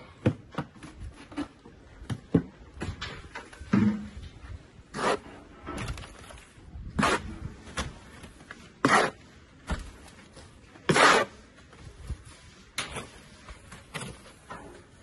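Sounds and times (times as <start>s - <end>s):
trowel scraping wet mortar: 4.9s - 6.0s, 6.8s - 9.4s, 10.6s - 11.5s.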